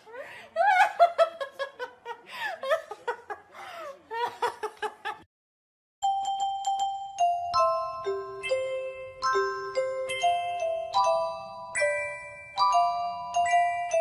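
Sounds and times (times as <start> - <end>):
woman giggling and laughing: 0.0 - 5.3
music with ringing notes: 6.0 - 14.0.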